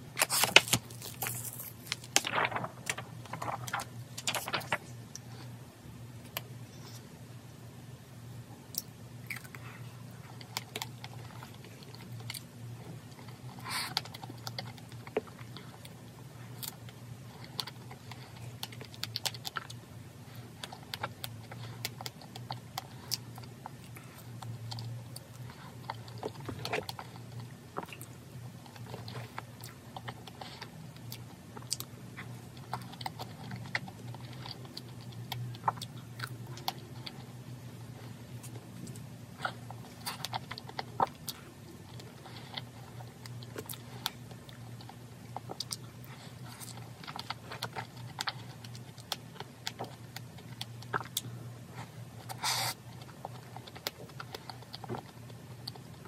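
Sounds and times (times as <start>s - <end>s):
steady low hum: 0.0s - 56.0s
packaging rustle: 0.2s - 5.0s.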